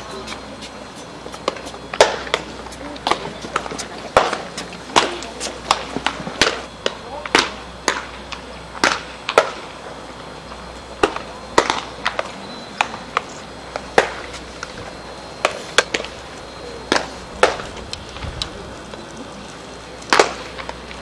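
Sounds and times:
baseballs smacking into gloves: 1.4s - 9.6s, 11.0s - 14.7s, 16.9s - 18.5s, 20.0s - 20.9s.

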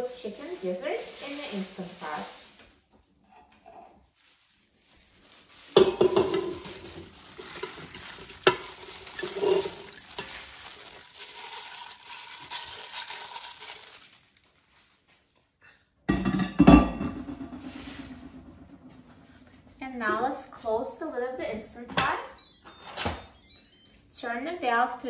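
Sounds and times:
handling noise: 4.9s - 14.2s.

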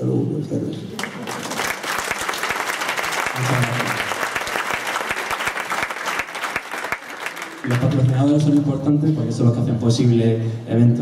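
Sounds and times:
audience applauding: 1.0s - 8.8s
man's voice: 3.3s - 4.0s, 7.6s - 11.0s.

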